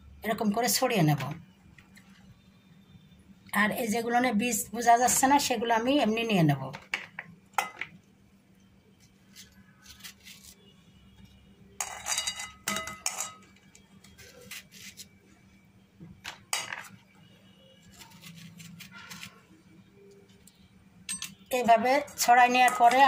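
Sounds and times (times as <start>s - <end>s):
spoon clinking on steel bowl: 11.8s - 13.5s, 22.5s - 23.0s.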